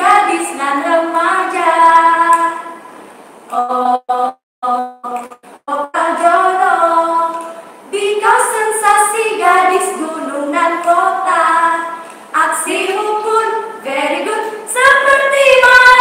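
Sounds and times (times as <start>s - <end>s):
women singing unaccompanied: 0.0s - 2.9s, 3.5s - 16.0s.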